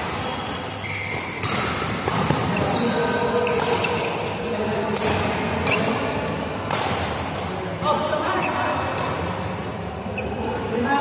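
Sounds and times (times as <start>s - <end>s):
racket striking shuttlecock: 0.0s - 2.7s, 3.4s - 4.2s, 4.8s - 7.6s
shoes squeaking on court floor: 0.0s - 6.2s, 9.9s - 10.9s.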